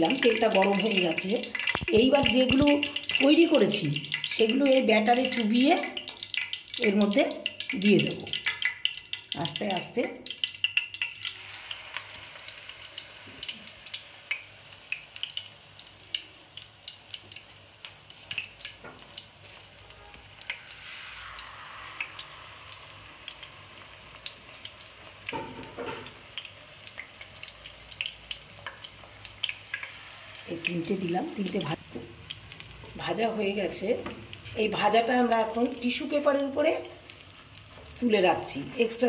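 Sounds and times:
egg rolls deep-frying in oil: 0.0 - 39.0
oil crackling and popping: 0.0 - 39.0.

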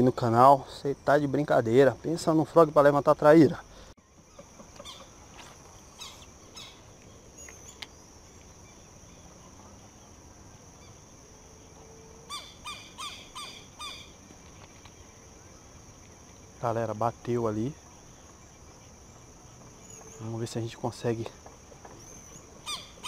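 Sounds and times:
birds chirping: 0.0 - 23.0
high-pitched insect drone: 3.6 - 21.0
bird repeated call notes: 4.3 - 8.0, 12.2 - 14.2, 21.9 - 23.0.

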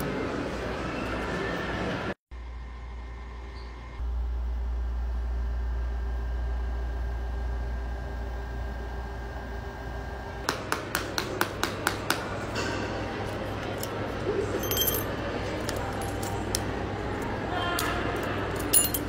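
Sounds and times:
scraping and glass clinks: 14.4 - 15.2, 18.6 - 19.0.

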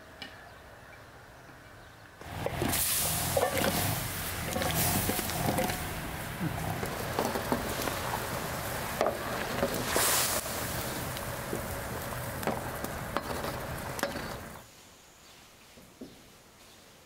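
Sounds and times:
fruit boiling hard in a pan: 2.2 - 14.7
wood fire crackling: 2.2 - 14.7.

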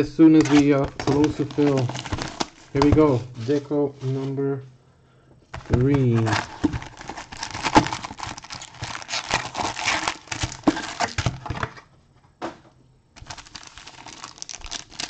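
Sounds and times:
foil packs crinkling: 0.2 - 3.7, 5.6 - 11.6, 13.2 - 15.0.

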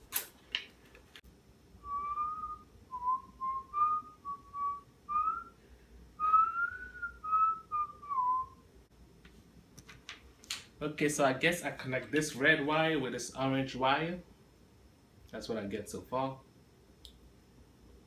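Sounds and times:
person whistling a tune: 1.8 - 5.6, 6.2 - 8.6.

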